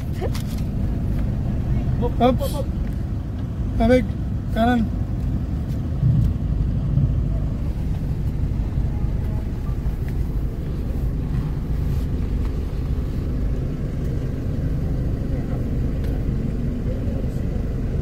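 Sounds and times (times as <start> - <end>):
car engine rumble: 0.0 - 18.0.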